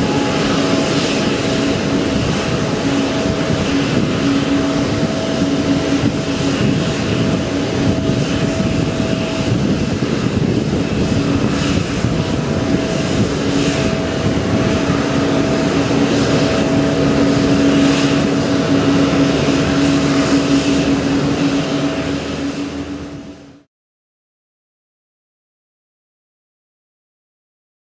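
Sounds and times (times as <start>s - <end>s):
jet airliner noise: 0.0s - 23.7s.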